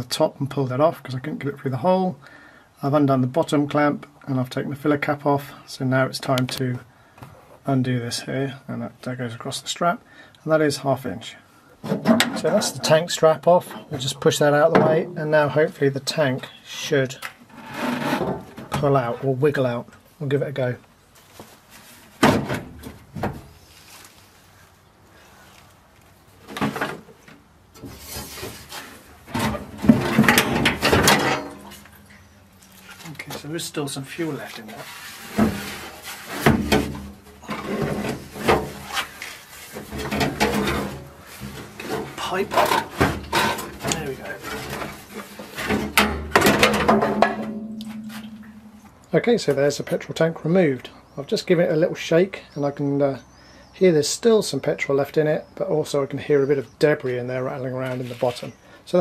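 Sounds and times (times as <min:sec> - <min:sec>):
metal scraping and rattling: 0:17.5 - 0:18.9, 0:27.8 - 0:32.2, 0:34.4 - 0:48.9
metal ringing tone: 0:47.5 - 0:48.9.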